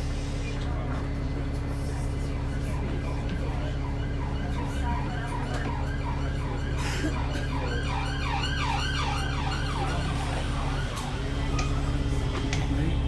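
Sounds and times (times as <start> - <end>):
bus engine drone: 0.0 - 13.0
muffled siren yelping: 3.6 - 11.1.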